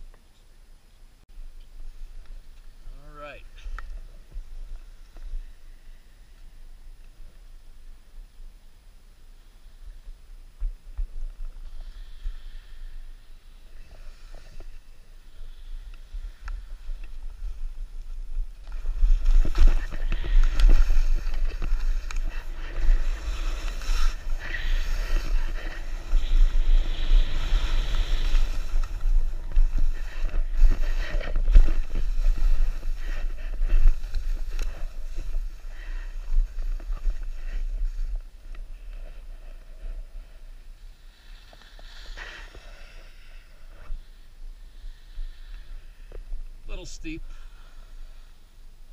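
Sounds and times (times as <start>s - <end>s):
skis scraping over snow: 11.0s - 46.1s.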